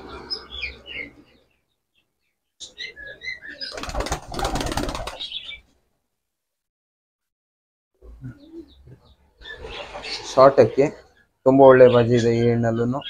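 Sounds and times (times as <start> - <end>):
small birds chirping: 0.0 - 5.8, 8.0 - 13.0
pigeon wings flapping: 3.7 - 5.3.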